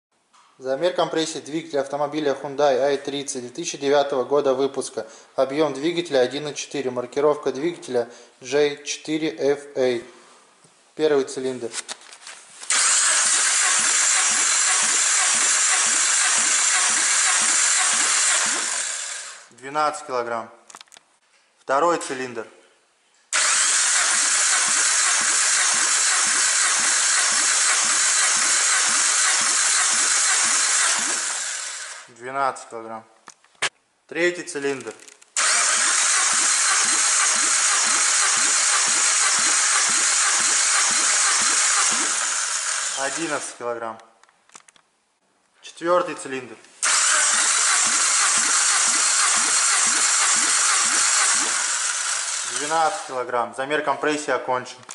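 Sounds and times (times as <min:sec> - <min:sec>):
engine cranking with pulsing hiss: 0:12.7 - 0:19.5, 0:23.4 - 0:32.1, 0:35.4 - 0:43.5, 0:46.8 - 0:53.2.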